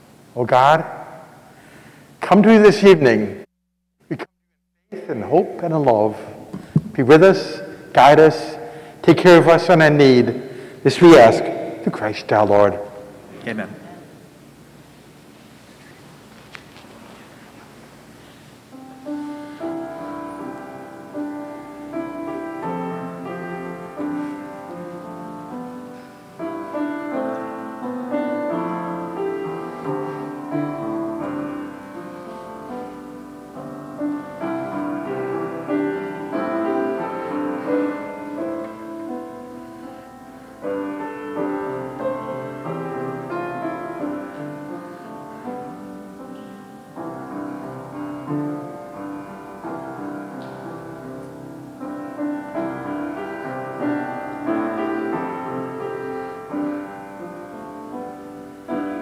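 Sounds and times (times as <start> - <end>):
piano music: 5.0 - 14.3, 17.7 - 59.0.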